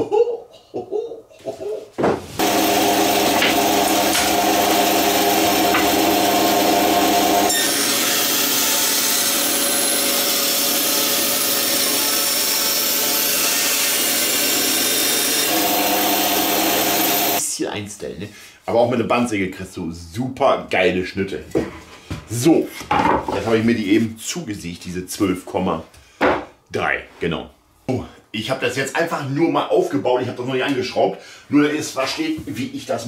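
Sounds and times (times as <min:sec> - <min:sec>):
bandsaw cutting wood: 0:02.4 - 0:17.4.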